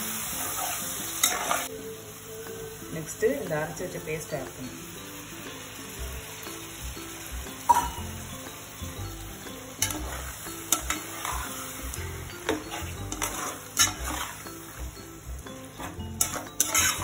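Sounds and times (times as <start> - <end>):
chicken sizzling in oil: 0.0 - 17.0
metal spatula stirring: 0.3 - 1.7, 9.7 - 17.0.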